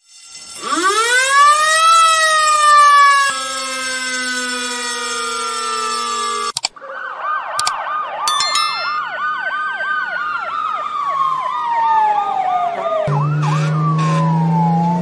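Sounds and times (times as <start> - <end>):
ambulance siren yelp and wail: 0.6 - 5.8, 6.8 - 8.3, 8.9 - 15.0
clicks: 7.6 - 9.0
short chime: 8.3 - 9.2
fire truck siren falling tones: 9.0 - 15.0
siren low steady drone: 12.1 - 15.0.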